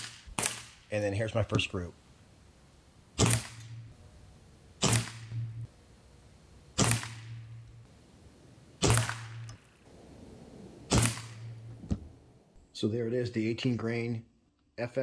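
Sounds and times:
air rifle shots: 0.0s - 0.9s, 3.2s - 3.8s, 4.8s - 5.4s, 6.7s - 7.4s, 8.8s - 12.3s.

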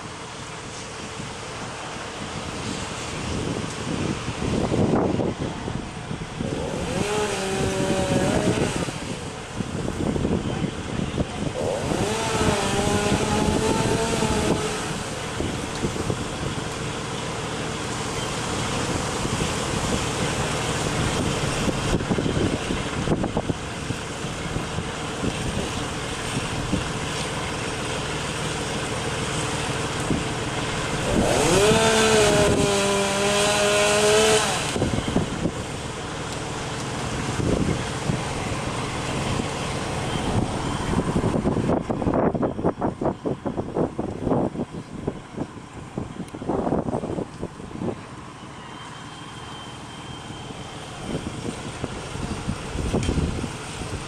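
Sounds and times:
rain: 0.0s - 6.4s, 14.6s - 31.0s
storm wind: 0.0s - 27.8s, 29.0s - 48.6s, 50.1s - 54.0s
engine revving: 6.3s - 9.3s, 11.5s - 16.2s, 28.3s - 41.6s.

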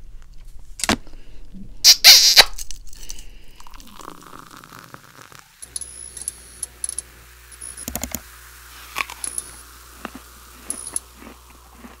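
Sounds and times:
sharp clicks: 7.8s - 8.2s.

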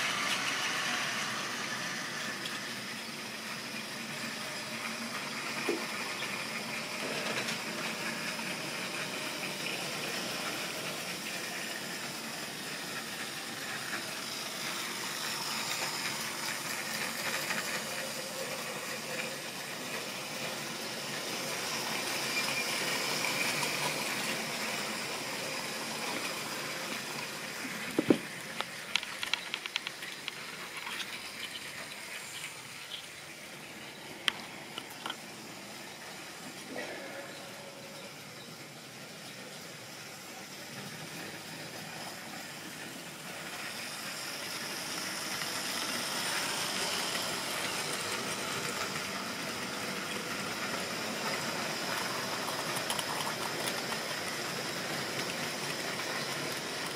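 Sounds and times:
model train rolling rumble: 0.0s - 56.9s
sharp clicks and knocks: 27.9s - 31.6s.

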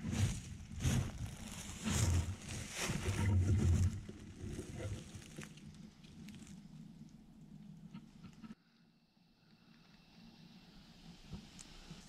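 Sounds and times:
footsteps crunching leaves: 0.0s - 3.8s.

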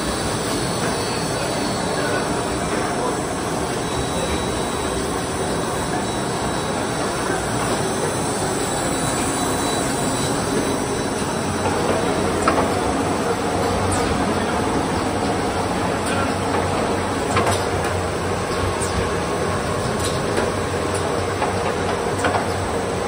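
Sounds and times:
machinery rollers and conveyor: 0.0s - 23.0s.

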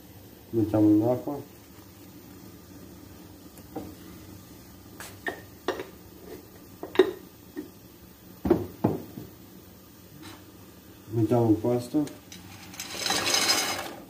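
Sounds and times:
metal pots and utensils clinking: 12.2s - 14.0s.

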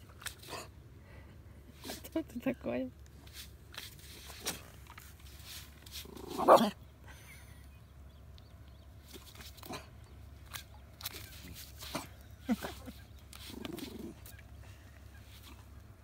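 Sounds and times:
dog barking: 6.4s - 6.8s.

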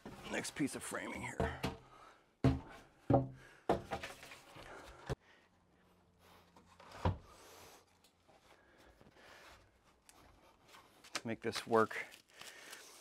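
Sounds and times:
wooden board knocks and thumps: 2.4s - 4.1s.

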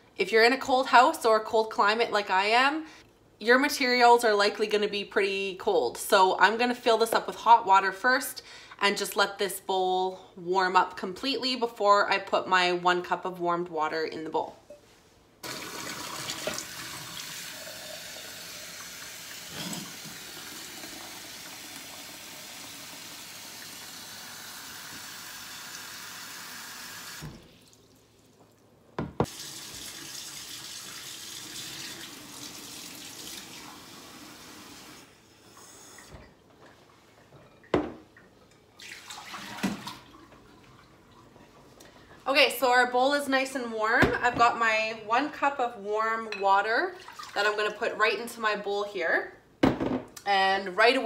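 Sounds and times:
faucet running water into bowl: 15.4s - 27.8s, 29.3s - 35.1s, 47.0s - 47.4s.

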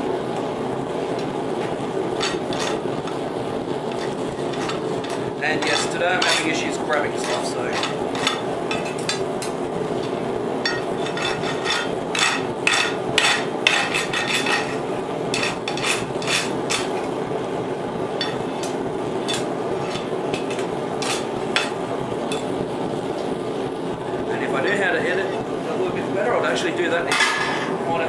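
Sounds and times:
file rasping on steel: 3.9s - 6.6s, 7.2s - 9.1s, 10.7s - 16.9s.

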